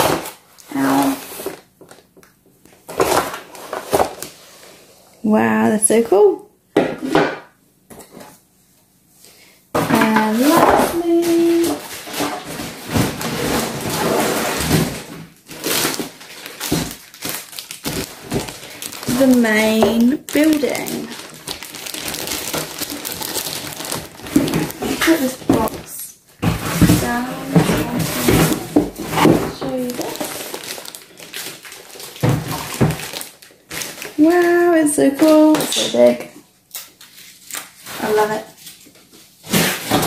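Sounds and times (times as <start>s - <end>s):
plastic bags crinkling: 10.0s - 40.0s
cardboard scraping and rustling: 10.2s - 20.0s, 20.6s - 31.0s.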